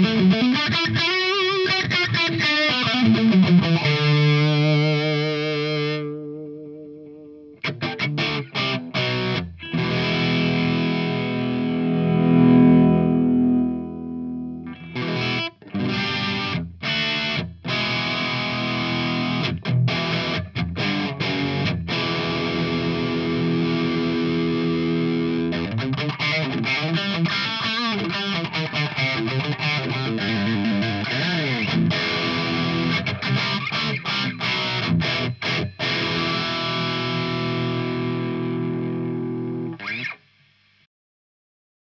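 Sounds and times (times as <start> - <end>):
distorted electric guitar: 0.0 - 40.8.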